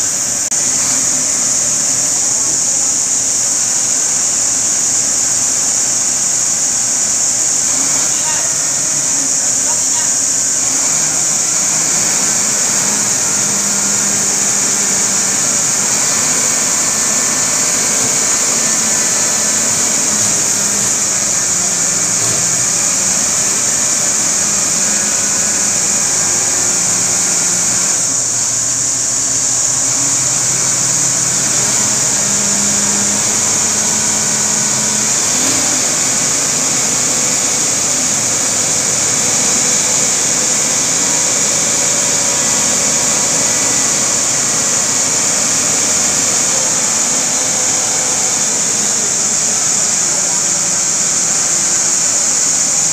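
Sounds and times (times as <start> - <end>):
crane diesel engine under load: 0.0 - 52.9
high-pitched hiss: 0.0 - 52.9.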